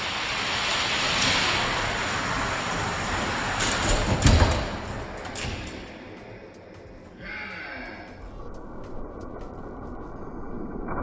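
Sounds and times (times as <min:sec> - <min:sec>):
toy cars rattling on plastic track: 0:00.2 - 0:05.7
clacks: 0:01.1 - 0:07.1.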